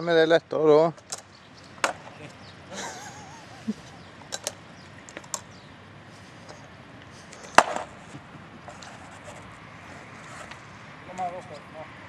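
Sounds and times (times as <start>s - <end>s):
caster board clacking on asphalt: 1.0s - 2.2s, 4.2s - 5.5s, 7.4s - 9.5s.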